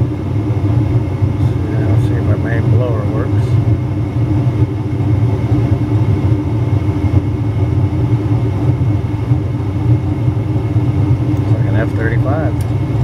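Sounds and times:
gas furnace drone: 0:00.0 - 0:13.0.

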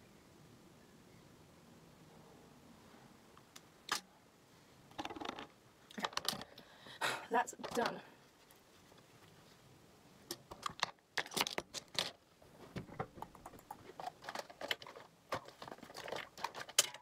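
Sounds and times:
makeup packaging clicks and rattles: 0:04.9 - 0:06.6, 0:10.3 - 0:17.0.

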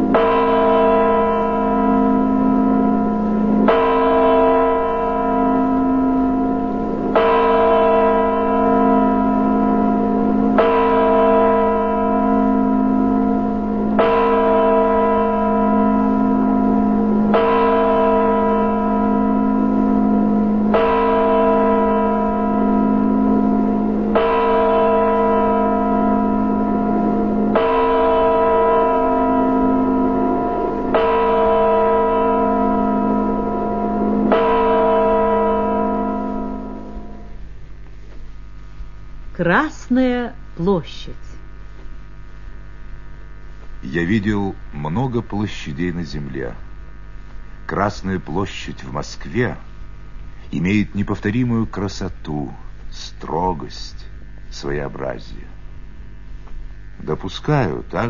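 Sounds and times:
large bell tolling: 0:00.0 - 0:37.6.

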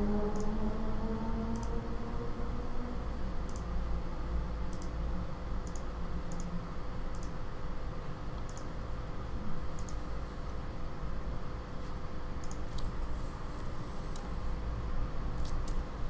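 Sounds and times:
steady low hum: 0:00.0 - 0:16.0
computer mouse clicks: 0:00.3 - 0:00.6, 0:01.5 - 0:01.8, 0:03.4 - 0:03.7, 0:04.7 - 0:05.0, 0:05.6 - 0:07.4, 0:08.4 - 0:08.7, 0:09.7 - 0:10.0, 0:12.4 - 0:12.9, 0:15.4 - 0:15.8.

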